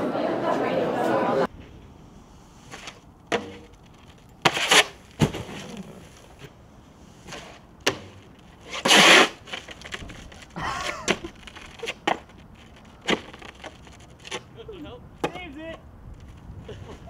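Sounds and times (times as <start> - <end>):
snowboard scraping on concrete: 2.5 - 14.5.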